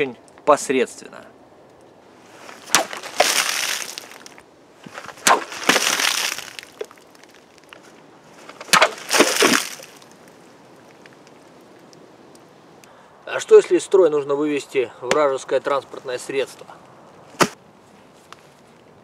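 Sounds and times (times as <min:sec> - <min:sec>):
dagger slashing plastic bottles: 0:02.6 - 0:04.3, 0:05.0 - 0:06.9, 0:08.6 - 0:10.0
water splashing and spraying: 0:08.7 - 0:10.0.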